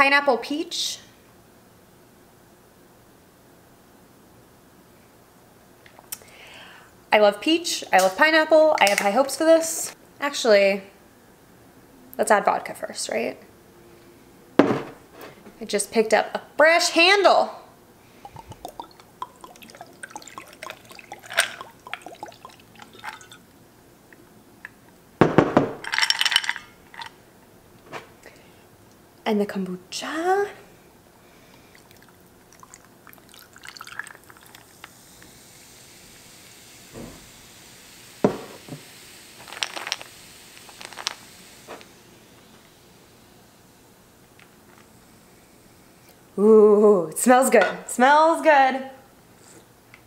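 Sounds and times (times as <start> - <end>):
liquid pouring over ice: 18.2 - 23.4, 31.6 - 34.9
fizzing crackle: 18.2 - 23.5, 31.6 - 36.2, 39.2 - 41.9
ice cubes clicking in glass: 18.4 - 23.4, 25.8 - 27.1.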